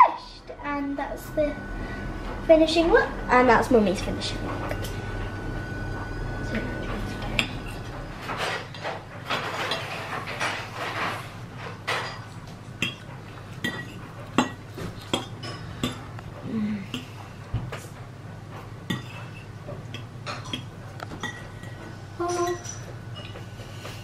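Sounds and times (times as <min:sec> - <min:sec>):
cutlery clinking on a ceramic plate: 0:18.9 - 0:23.4.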